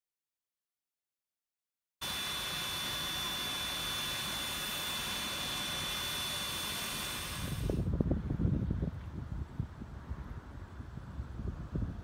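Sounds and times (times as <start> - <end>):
steam hissing from locomotive: 2.0 - 7.8.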